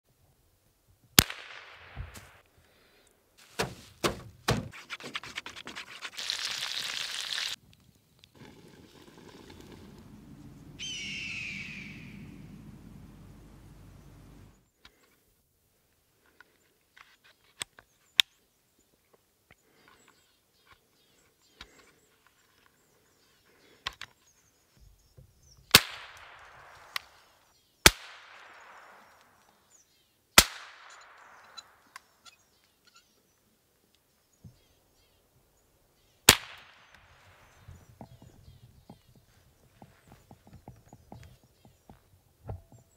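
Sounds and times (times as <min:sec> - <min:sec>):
rifle shots with echo: 0:01.2 - 0:02.4, 0:25.7 - 0:27.3, 0:27.9 - 0:29.4, 0:30.4 - 0:31.9, 0:36.3 - 0:37.5
faint clicks and rustles: 0:07.5 - 0:10.8, 0:37.0 - 0:42.9.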